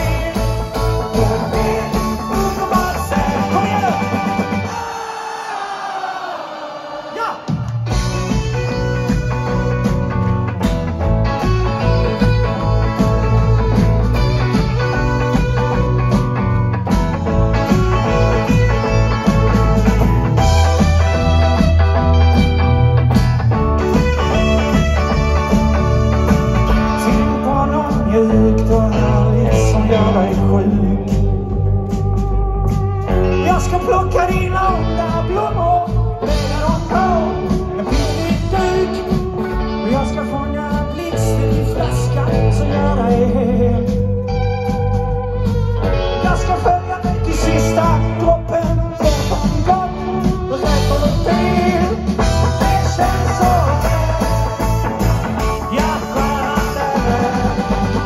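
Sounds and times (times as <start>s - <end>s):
bass guitar: 0.0s - 4.9s, 7.5s - 58.0s
electric guitars: 0.0s - 5.8s, 7.4s - 58.0s
live rock band playing: 0.0s - 6.0s, 7.1s - 58.0s
person singing: 0.0s - 9.5s, 26.6s - 31.6s, 33.1s - 44.3s, 46.0s - 58.0s
drums: 0.0s - 58.0s
keyboard: 0.0s - 58.0s
drums with cymbals: 42.3s - 58.0s.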